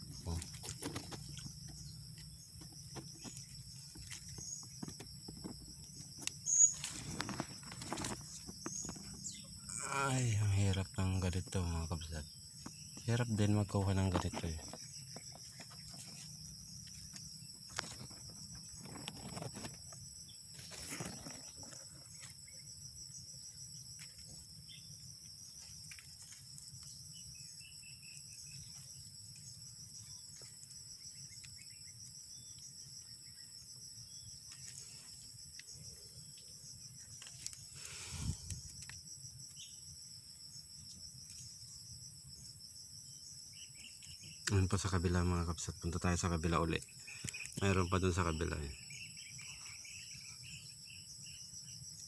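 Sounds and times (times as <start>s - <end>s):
insects trilling: 0.0s - 52.0s.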